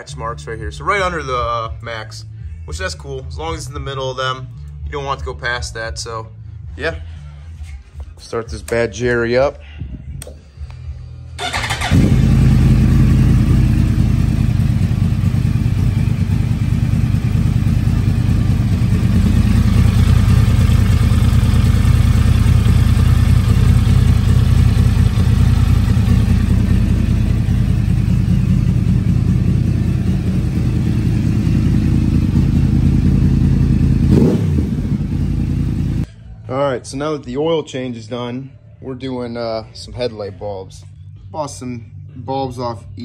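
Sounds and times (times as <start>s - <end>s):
motorcycle engine idling: 11.4s - 36.1s.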